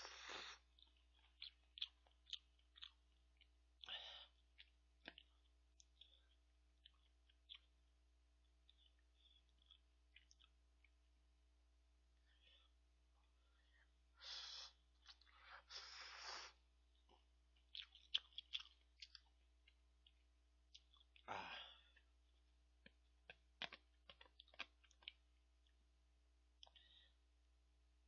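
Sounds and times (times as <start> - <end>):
person slurping noodles: 0.0 - 0.6, 15.7 - 16.6
person chewing: 0.0 - 11.1, 12.5 - 25.8, 26.6 - 27.0
wet mouth clicks and smacks: 22.8 - 25.2.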